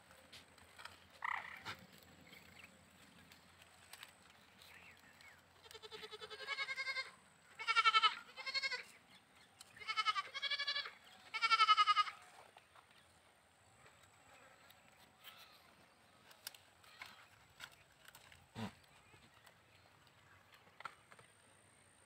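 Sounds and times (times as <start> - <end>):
goats bleating: 5.6 - 9.0, 9.8 - 12.4.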